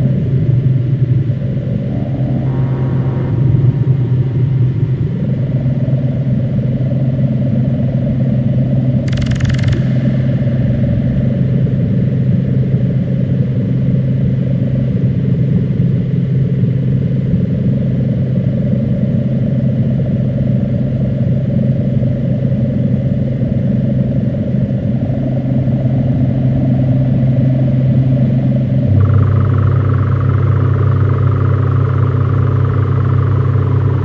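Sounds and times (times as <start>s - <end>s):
loud low drone with rumble: 0.0s - 34.0s.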